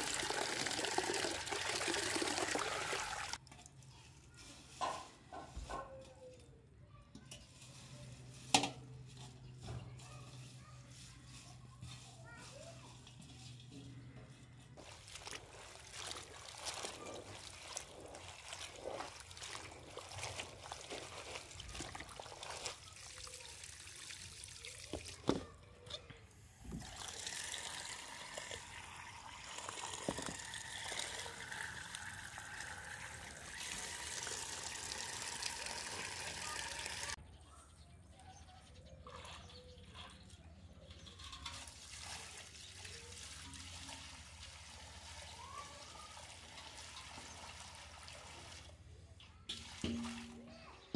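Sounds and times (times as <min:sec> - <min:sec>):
tap water running into a bowl: 0:00.0 - 0:03.6, 0:14.8 - 0:25.5, 0:26.7 - 0:37.2, 0:41.2 - 0:48.8, 0:49.5 - 0:50.5
greens splashing in a bowl of water: 0:14.8 - 0:25.4, 0:26.8 - 0:37.2.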